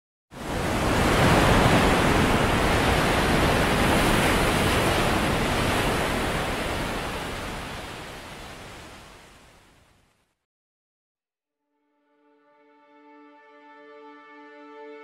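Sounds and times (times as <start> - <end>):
wind: 0.3 - 10.1
stormy sea waves: 0.4 - 10.0.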